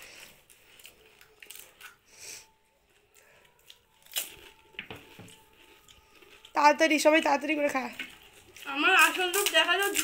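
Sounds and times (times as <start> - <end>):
crisp shells cracking: 0.5 - 2.1, 3.6 - 6.6, 7.9 - 10.0.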